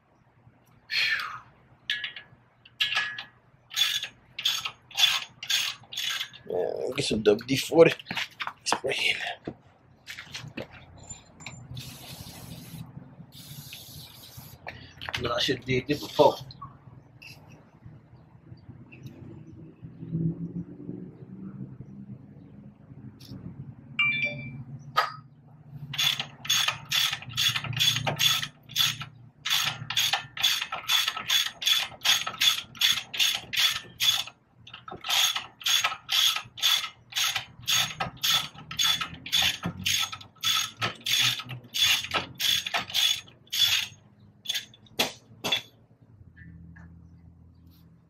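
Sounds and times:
ratchet wrench clicking: 2.7 - 6.4, 26.0 - 44.8.

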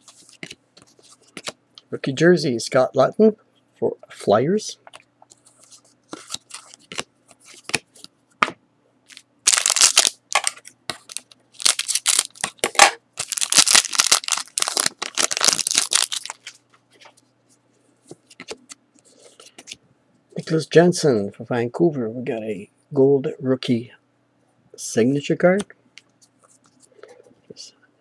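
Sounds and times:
plastic wrapper crinkling and tearing: 9.1 - 16.6.

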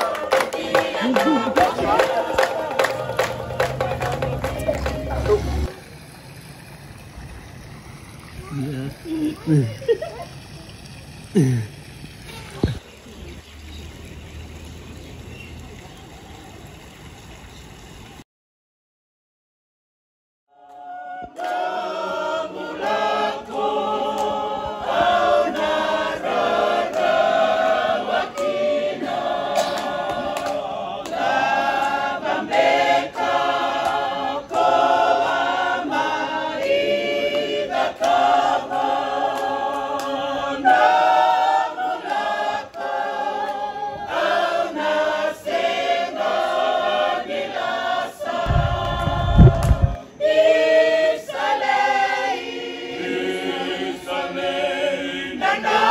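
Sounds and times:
choir singing: 0.0 - 5.7, 20.5 - 55.9
low rumble: 48.5 - 50.0.

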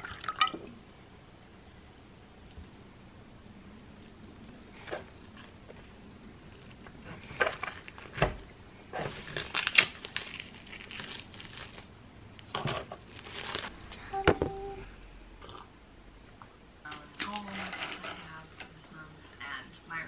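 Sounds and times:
plastic wrapping crinkling: 6.5 - 11.9, 13.0 - 13.7.

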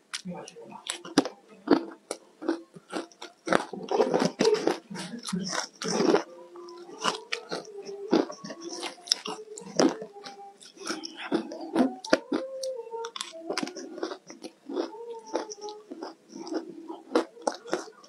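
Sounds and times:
ice being chewed: 0.8 - 18.0.

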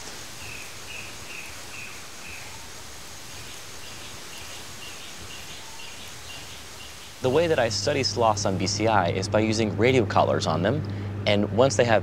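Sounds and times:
rainforest background hiss: 0.0 - 12.0
small animal high calls: 0.4 - 7.1.

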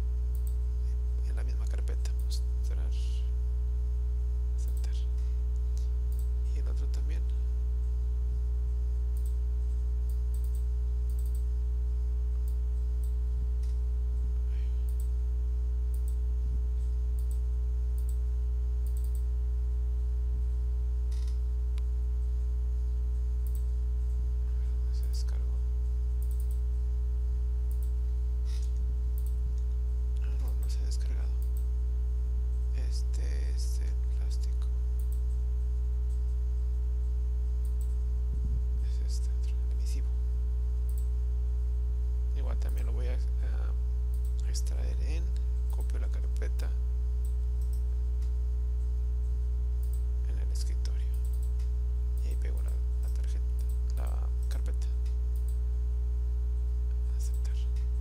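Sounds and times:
electrical mains hum: 0.0 - 58.0
computer mouse clicks: 0.3 - 0.6, 9.2 - 9.4, 10.1 - 11.5, 15.9 - 16.2, 17.2 - 17.4, 18.0 - 18.2, 18.8 - 19.3, 21.1 - 21.9, 23.4 - 23.7, 26.2 - 26.6, 27.7 - 29.7, 31.4 - 31.7, 35.0 - 35.4, 37.6 - 38.0, 40.9 - 41.1, 47.2 - 48.3, 49.8 - 50.0, 51.1 - 55.6.

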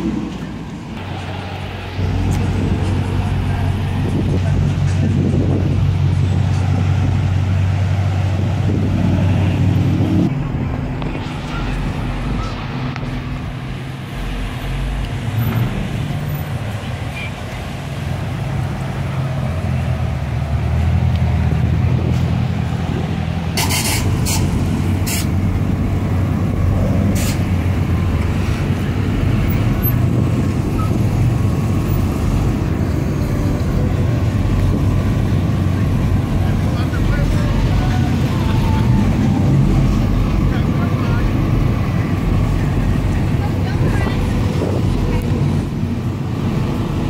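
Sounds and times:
car exhaust rumble: 0.0 - 47.0
cars idling in traffic: 0.0 - 47.0.

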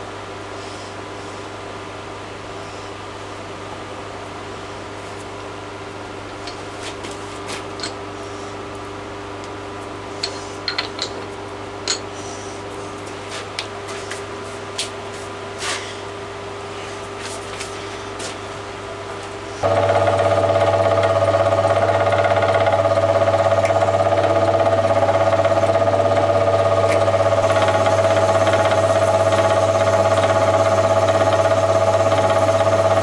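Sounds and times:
milling machine humming: 18.1 - 33.0.

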